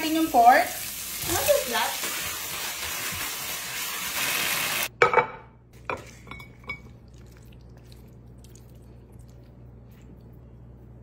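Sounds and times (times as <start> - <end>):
food sizzling in a wok: 0.0 - 4.9.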